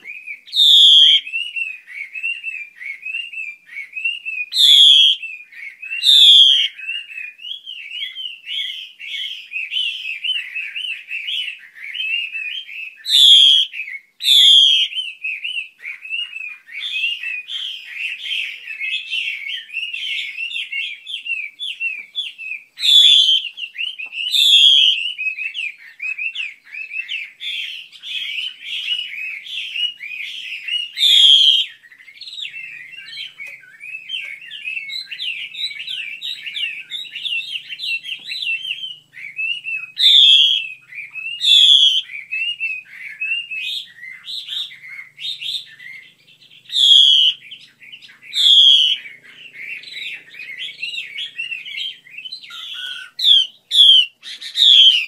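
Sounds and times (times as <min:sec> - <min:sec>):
bird chattering chirps: 0:00.0 - 0:01.5, 0:04.6 - 0:05.2, 0:14.3 - 0:55.0
bird sharp down-slurred notes: 0:26.9 - 0:55.0.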